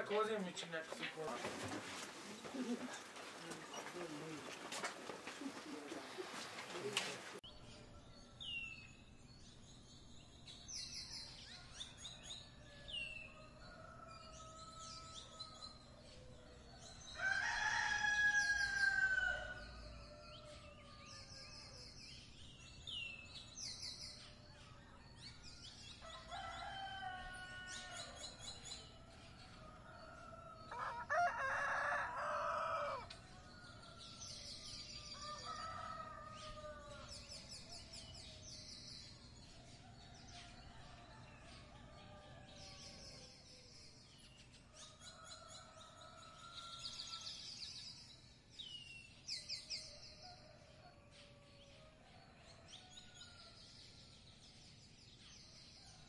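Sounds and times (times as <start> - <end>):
small birds chirping: 0.0 - 56.0
rooster crowing: 17.1 - 21.2, 26.1 - 28.2, 29.9 - 33.2.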